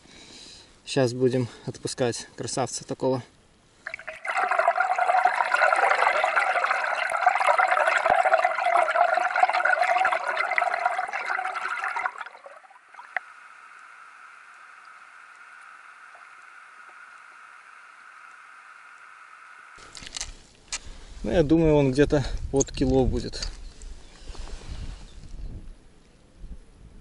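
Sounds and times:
muffled water rushing underwater: 3.9s - 19.7s.

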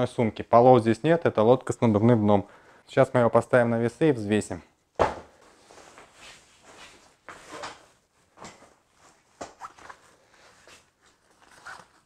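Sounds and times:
nylon bag rustling: 9.0s - 12.0s.

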